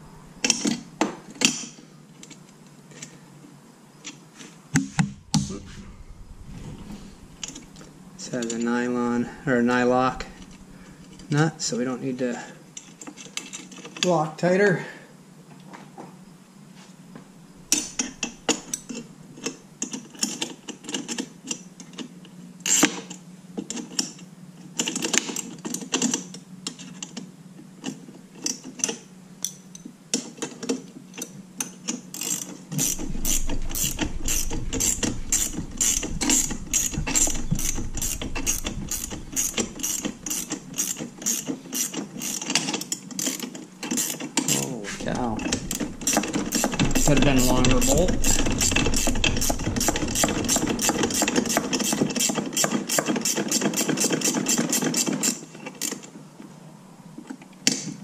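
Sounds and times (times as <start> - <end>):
ratchet wrench clicking: 32.2 - 44.6, 45.5 - 55.4.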